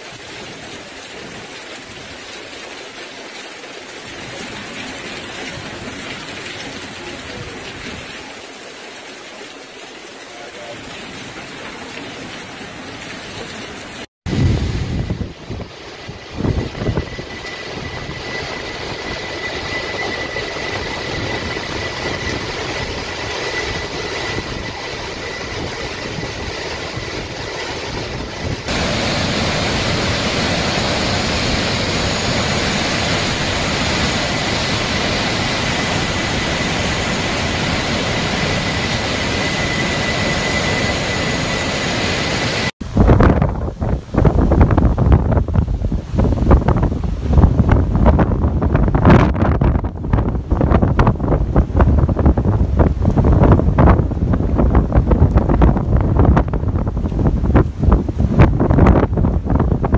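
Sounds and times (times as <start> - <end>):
hurricane wind roaring: 0.0 - 59.9
wind buffeting microphone: 14.3 - 59.9.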